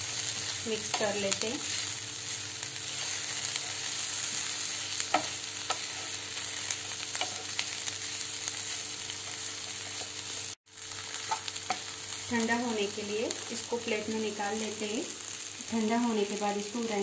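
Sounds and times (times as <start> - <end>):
food sizzling in oil: 0.0 - 17.0
spatula tapping and scraping pan: 5.0 - 6.1.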